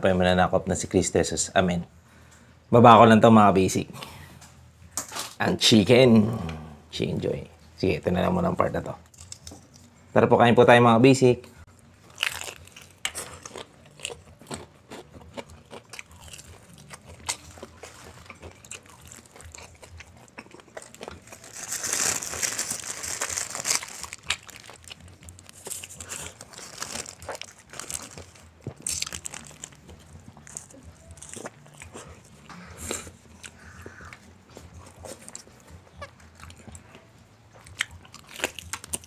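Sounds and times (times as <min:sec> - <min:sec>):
chewing crispy fried chicken: 0:12.0 - 0:39.0
paper wrapper crinkling: 0:20.8 - 0:30.7.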